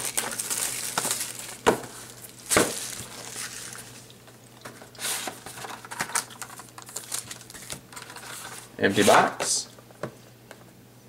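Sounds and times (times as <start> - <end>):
plastic shrink wrap crinkling: 0.0 - 8.6.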